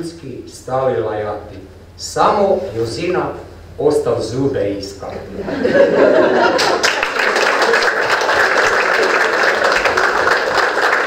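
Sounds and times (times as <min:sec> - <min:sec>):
audience applause: 0:06.5 - 0:11.0.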